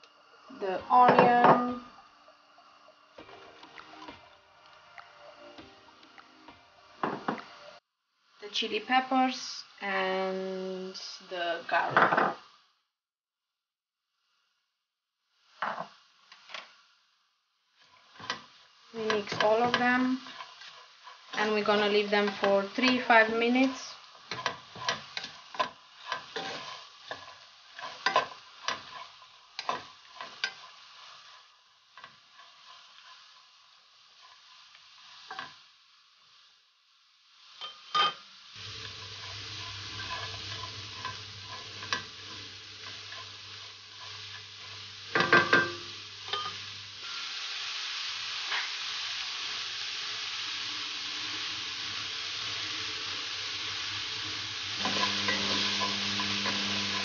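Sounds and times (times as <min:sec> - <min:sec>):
vegetables sizzling in oil: 0:00.0 - 0:12.9, 0:14.1 - 0:57.0
spatula scraping and tapping pan: 0:17.8 - 0:33.5, 0:34.2 - 0:35.6, 0:37.6 - 0:46.7, 0:54.8 - 0:57.0.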